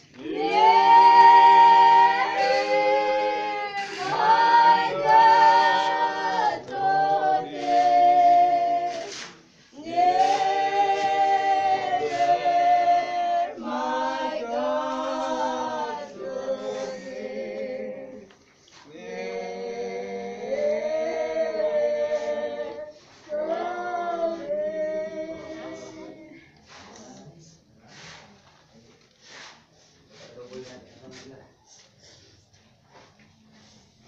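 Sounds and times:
group singing unaccompanied: 0:00.0 - 0:27.4.

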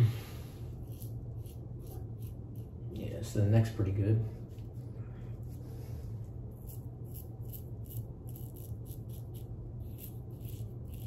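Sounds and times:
razor scraping through stubble: 0:00.7 - 0:03.2, 0:06.4 - 0:11.0.

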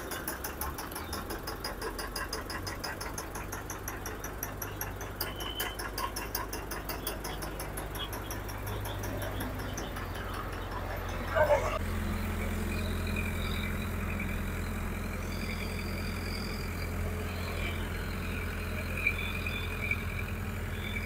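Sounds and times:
fast even ticking: 0:00.0 - 0:11.6
crane engine humming: 0:00.0 - 0:21.0.

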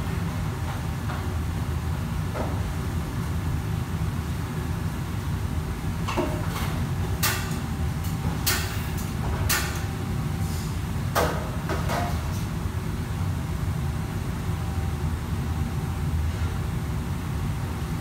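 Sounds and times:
wok station low rumble: 0:00.0 - 0:18.0.

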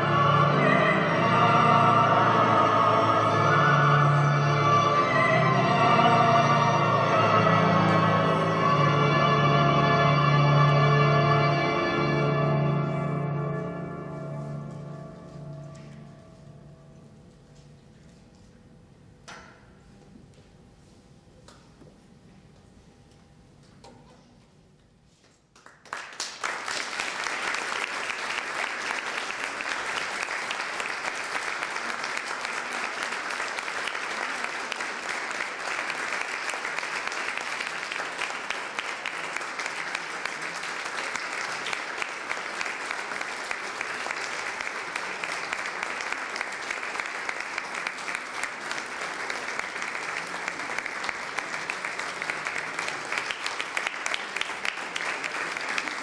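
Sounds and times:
audience applauding: 0:25.6 - 0:56.0.

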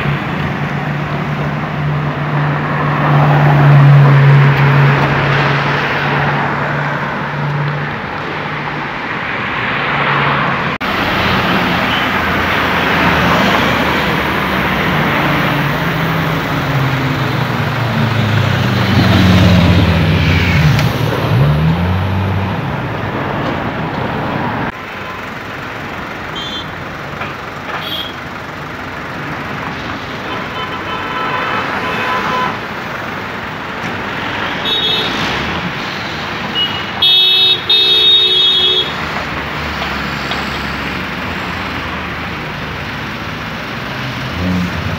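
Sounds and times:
city traffic: 0:00.0 - 0:44.9
car horns tooting: 0:11.7 - 0:12.4, 0:26.3 - 0:26.8, 0:27.7 - 0:28.2, 0:30.2 - 0:32.6, 0:34.5 - 0:35.3, 0:36.5 - 0:39.0.

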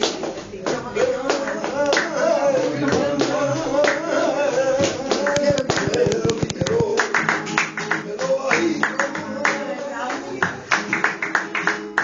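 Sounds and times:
rhythmic handclapping: 0:00.0 - 0:04.1, 0:04.7 - 0:12.0.

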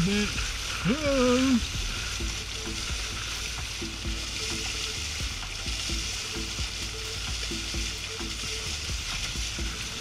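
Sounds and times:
faint looped melody: 0:00.0 - 0:10.0
water rushing along hulls: 0:00.0 - 0:10.0.

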